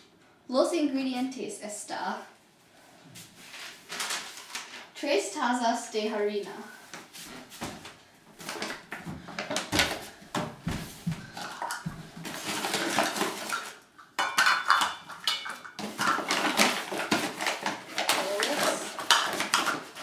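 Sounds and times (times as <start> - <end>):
kitchen utensils clinking and scraping: 12.3 - 20.0.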